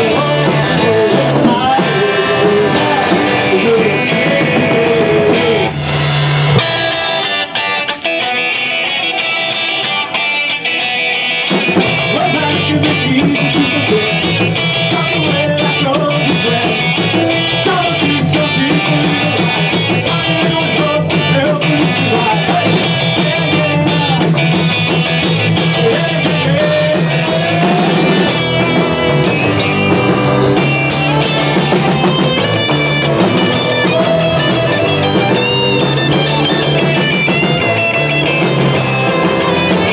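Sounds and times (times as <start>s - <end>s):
person singing into a microphone: 0.0s - 5.8s, 11.8s - 29.6s
drum kit: 0.0s - 39.9s
electric guitars: 0.0s - 39.9s.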